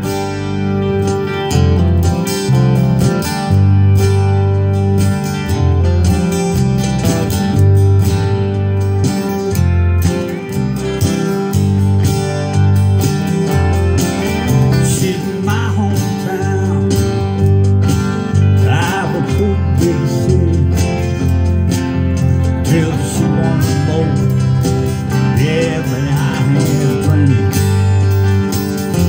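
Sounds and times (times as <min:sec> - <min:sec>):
acoustic guitar strumming: 0:00.0 - 0:29.0
person singing: 0:13.5 - 0:17.6, 0:18.4 - 0:21.3, 0:22.6 - 0:27.8.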